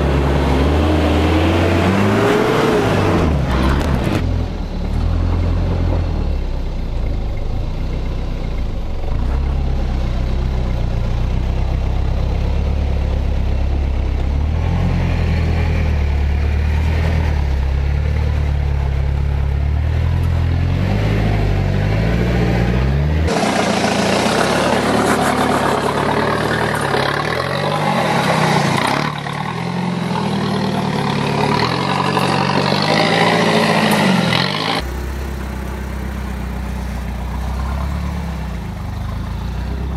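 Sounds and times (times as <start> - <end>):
diesel engine revving at low speed: 0.0 - 39.9.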